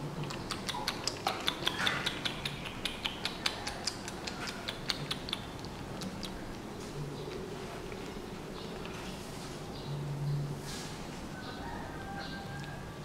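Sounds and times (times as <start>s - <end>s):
rapid sharp clicking: 0.2s - 6.4s.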